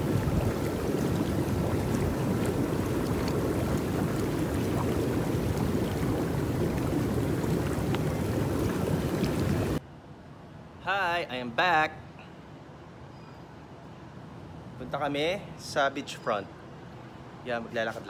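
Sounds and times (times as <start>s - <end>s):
pool jets churning water: 0.0s - 9.8s
small water splashes: 0.0s - 9.8s.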